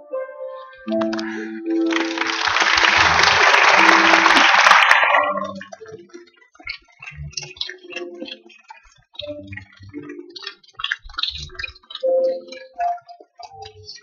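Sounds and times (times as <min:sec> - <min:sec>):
music: 0:00.0 - 0:14.0
guests applauding: 0:01.0 - 0:05.8.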